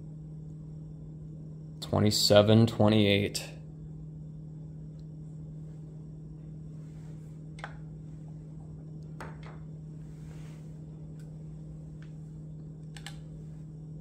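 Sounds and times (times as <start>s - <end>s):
steady low hum: 0.0s - 14.0s
soft slide on countertop: 10.0s - 10.9s.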